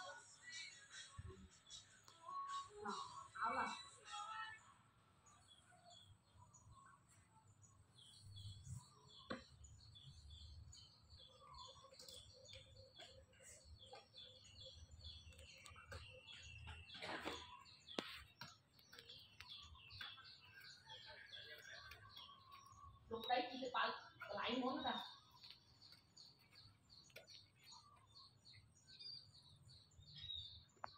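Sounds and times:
faint bird chirps: 0.0s - 30.9s.

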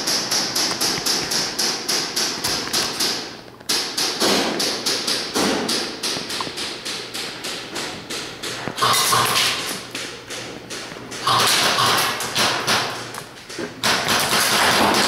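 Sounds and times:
airsoft gun firing rapidly: 8.8s - 9.7s, 11.2s - 13.0s, 13.8s - 15.0s.

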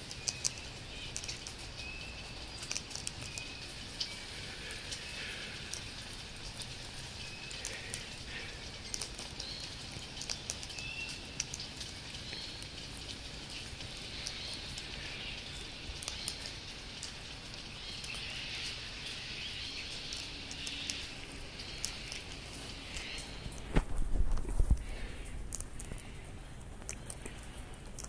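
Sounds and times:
birds cracking seeds with beaks: 0.0s - 28.0s
light rain hiss: 0.0s - 28.0s.

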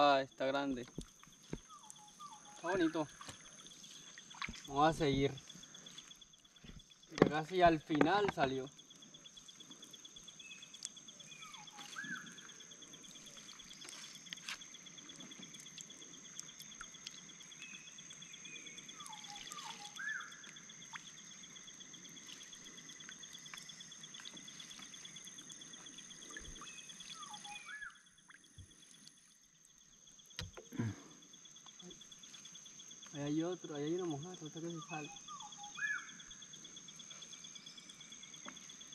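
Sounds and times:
high insect chorus: 0.0s - 38.9s
net hauled into wooden canoe: 6.5s - 8.6s.

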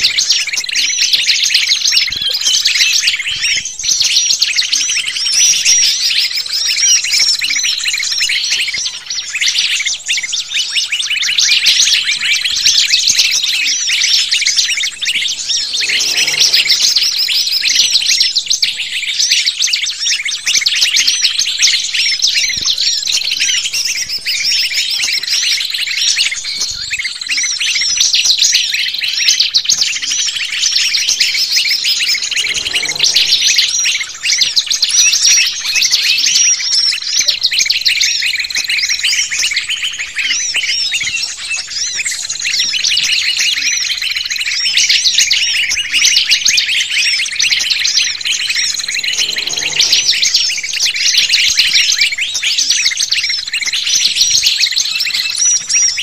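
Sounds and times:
songbirds chirping and twittering: 0.0s - 56.0s
thin high note: 15.0s - 17.6s, 31.7s - 34.4s, 48.2s - 51.4s.

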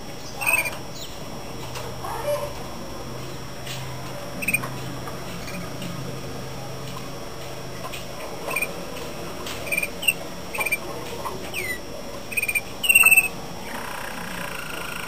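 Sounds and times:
canary singing: 0.2s - 1.2s, 4.4s - 4.7s, 5.4s - 5.7s, 8.4s - 8.8s, 9.6s - 15.0s.

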